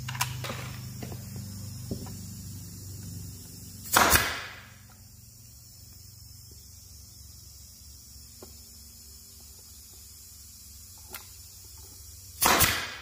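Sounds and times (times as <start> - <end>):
nail gun firing: 3.8 - 4.7, 12.4 - 13.0.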